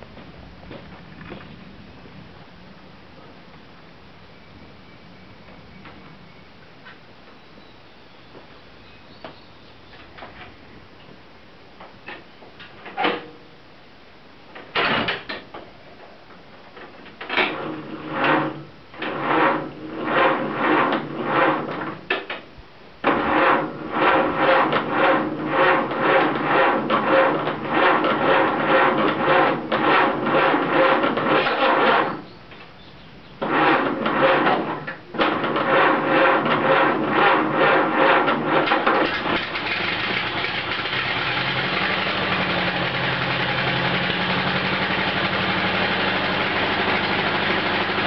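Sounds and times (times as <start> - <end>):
engine cranking on starter: 23.0 - 32.2, 33.4 - 48.0.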